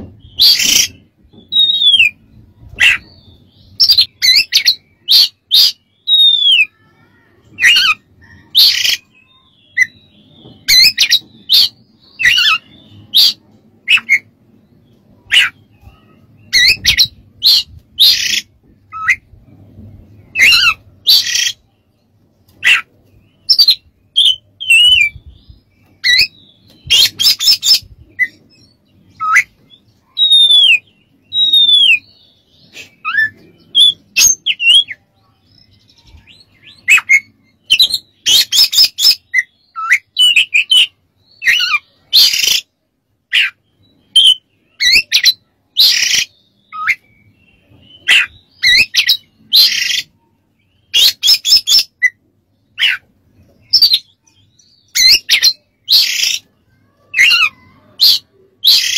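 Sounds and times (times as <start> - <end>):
bird singing whistled song: 0.2 - 2.2, 2.8 - 6.7, 7.6 - 14.3, 23.4 - 35.0, 35.6 - 42.7, 43.4 - 52.2, 53.6 - 56.5.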